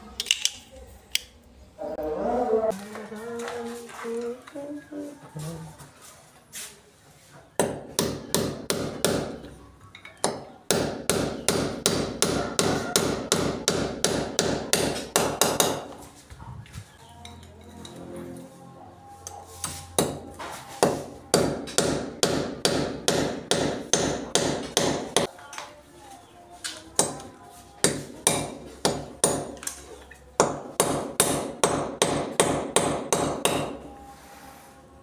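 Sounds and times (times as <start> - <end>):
hammer striking nail: 7.6 - 9.4, 10.2 - 15.9, 20.0 - 25.3, 27.8 - 29.6, 30.4 - 33.8.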